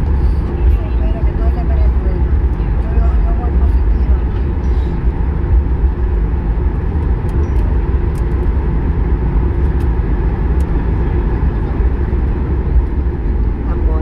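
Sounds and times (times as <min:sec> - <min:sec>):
airplane cabin rumble while taxiing: 0:00.0 - 0:14.0.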